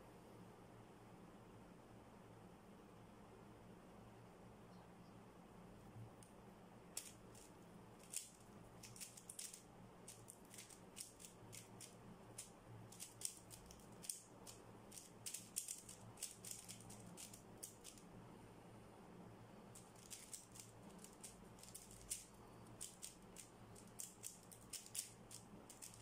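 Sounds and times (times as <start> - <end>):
plastic puzzle cube clicking: 7.0 - 18.0, 19.8 - 26.0.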